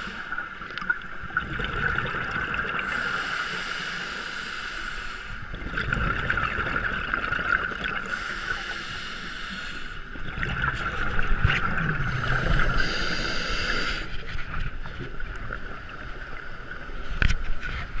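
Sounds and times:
scuba regulator bubbles rumbling: 0.0s - 3.3s, 5.4s - 8.5s, 10.1s - 18.0s.

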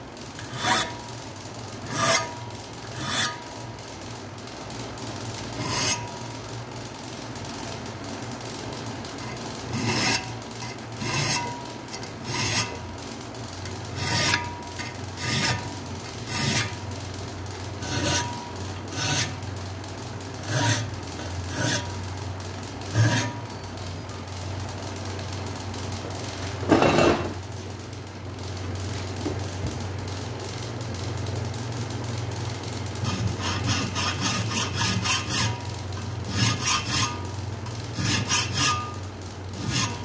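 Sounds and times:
hand file rasping on metal: 0.4s - 1.0s, 1.9s - 2.3s, 5.6s - 6.1s, 9.3s - 12.8s, 14.0s - 16.8s, 17.8s - 19.4s, 20.4s - 20.9s, 21.5s - 21.9s, 22.9s - 23.4s, 33.0s - 37.3s, 38.0s - 39.0s, 39.6s - 40.0s.

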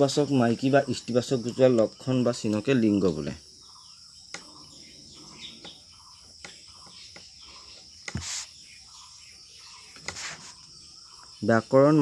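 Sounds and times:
crickets chirring: 0.0s - 12.0s
pen scratching on paper: 7.5s - 8.6s, 9.9s - 10.7s.

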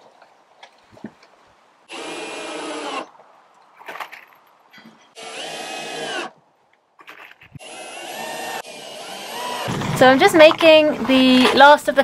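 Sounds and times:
power drill driving screws: 1.9s - 3.1s, 5.2s - 6.3s, 7.5s - 10.0s.

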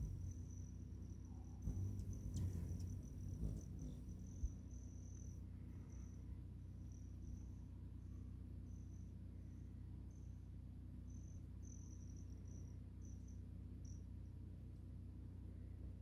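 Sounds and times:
low steady hum: 0.0s - 0.7s, 1.7s - 6.4s
crickets chirping: 0.0s - 7.7s, 11.1s - 14.0s.

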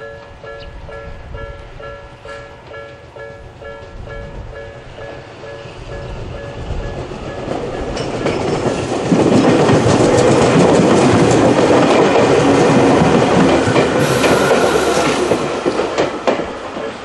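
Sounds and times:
electric train passing: 0.0s - 17.0s
level crossing alarm ringing: 13.8s - 16.1s.

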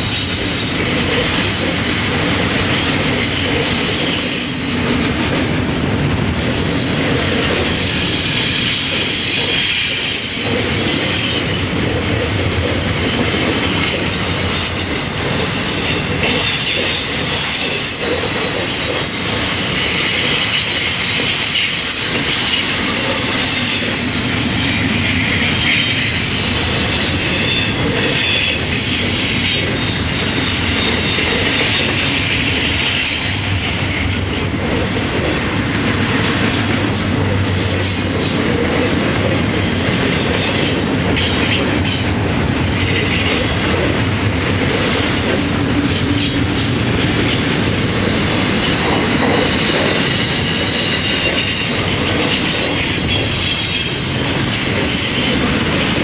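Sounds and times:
freight train wheels rumbling: 0.0s - 56.0s
high-pitched wheel squeal: 8.0s - 11.5s, 49.6s - 51.8s.

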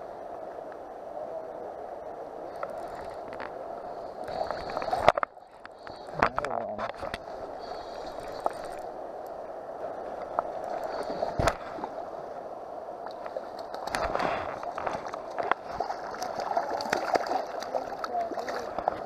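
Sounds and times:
river water lapping: 2.4s - 19.0s
small splash in water: 14.9s - 18.8s.

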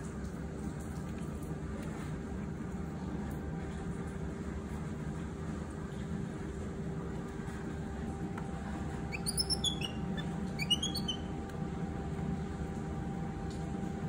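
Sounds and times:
steady low hum: 0.2s - 14.0s
baby monkey squeaky chirps: 9.1s - 11.3s.

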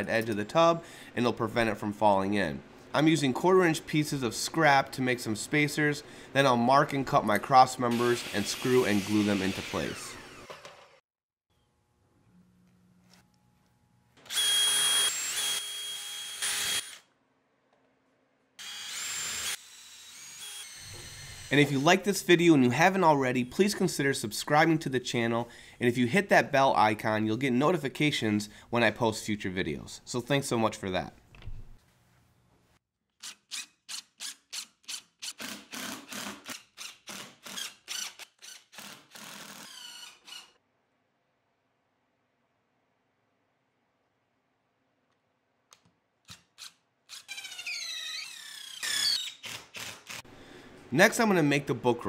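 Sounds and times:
cordless drill driving a screw: 7.9s - 11.0s, 14.3s - 17.1s, 18.6s - 21.5s, 33.2s - 40.6s, 46.6s - 50.2s
impact driver driving screws: 46.3s - 50.2s.

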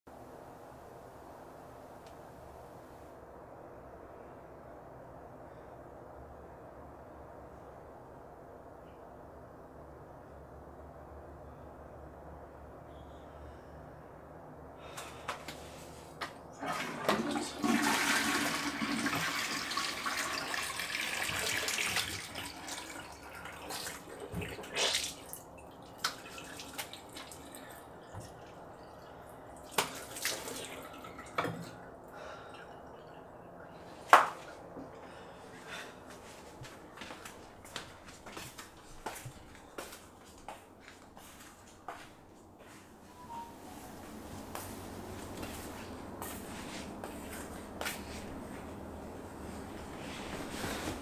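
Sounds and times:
toilet flushing: 16.6s - 28.5s, 29.6s - 34.2s
water trickling from a tap: 19.2s - 31.6s.

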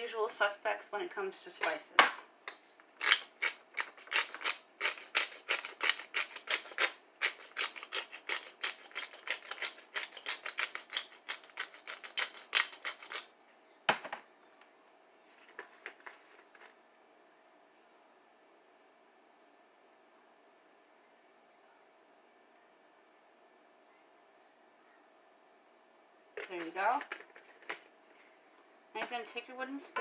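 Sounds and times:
pepper grinder gritty clicks: 2.5s - 13.3s.

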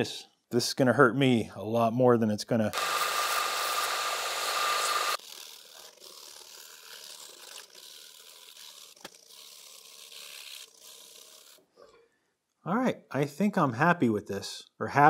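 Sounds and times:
belt sander grinding: 2.8s - 11.7s
hand filing and sanding: 3.5s - 11.8s.

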